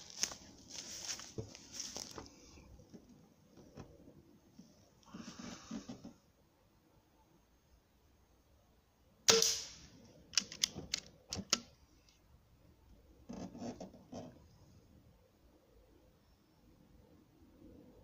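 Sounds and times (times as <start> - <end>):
soft handling sounds: 0.0 - 6.2
air rifle shot: 9.3 - 9.8.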